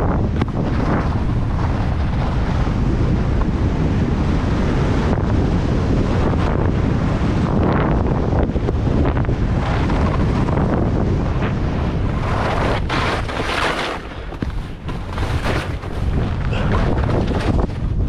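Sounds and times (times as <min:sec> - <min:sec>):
wind buffeting microphone: 0:00.0 - 0:18.0
skis scraping on hard snow: 0:00.1 - 0:03.5, 0:08.9 - 0:18.0.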